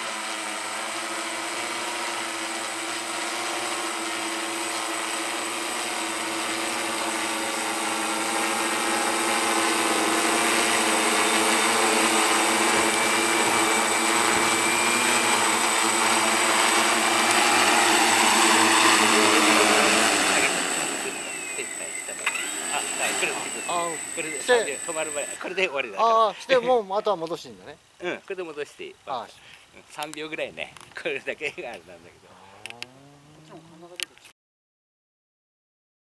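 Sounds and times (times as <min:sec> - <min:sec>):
drone propellers buzzing: 0:00.0 - 0:25.7.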